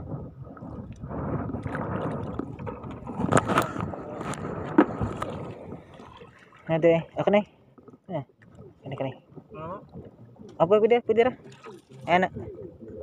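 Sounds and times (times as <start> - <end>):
seawater sloshing and splashing: 0.1 - 13.0
sharp splashes: 3.2 - 7.5, 8.4 - 13.0.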